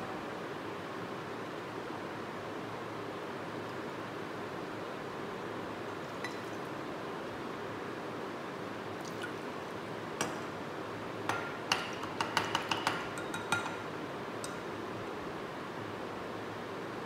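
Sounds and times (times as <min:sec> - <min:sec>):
glass clinking: 0:06.2 - 0:06.6, 0:11.3 - 0:13.8.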